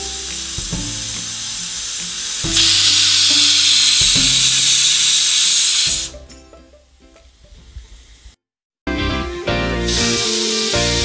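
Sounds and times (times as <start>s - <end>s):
pressure cooker whistling: 0.0s - 6.2s.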